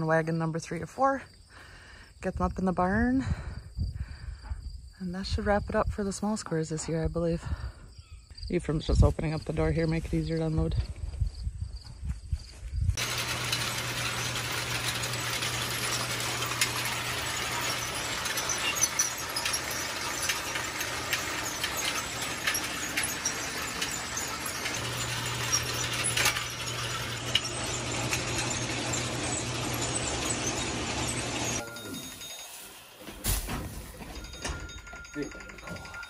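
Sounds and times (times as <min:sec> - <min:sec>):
electric motor humming: 0:13.0 - 0:33.0
drag chain rattling and clicking: 0:13.0 - 0:36.0.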